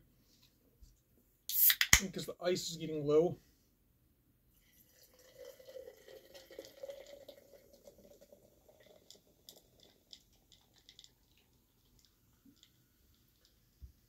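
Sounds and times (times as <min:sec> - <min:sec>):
soda pouring into a glass jar: 0:04.6 - 0:13.6.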